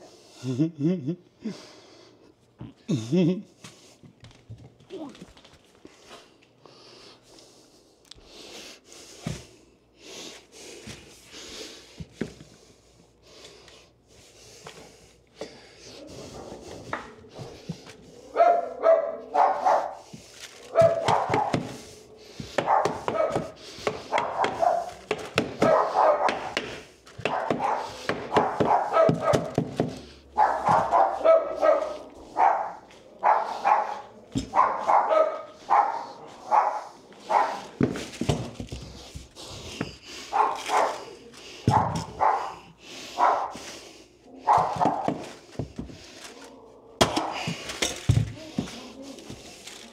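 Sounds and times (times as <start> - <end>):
dog barking: 18.2 - 37.9, 40.3 - 43.6, 44.3 - 45.3.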